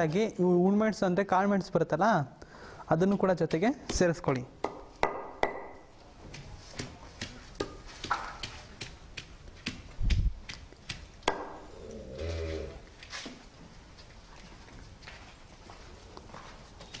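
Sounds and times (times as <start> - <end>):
pestle knocking on stone slab: 3.1 - 11.6.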